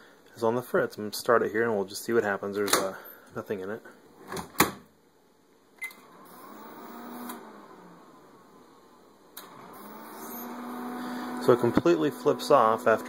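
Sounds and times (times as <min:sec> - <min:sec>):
microwave oven hum: 0:05.8 - 0:13.0.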